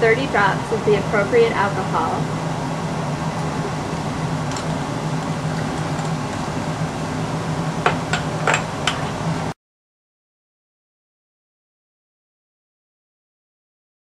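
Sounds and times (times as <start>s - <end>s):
ventilation hum: 0.0s - 9.6s.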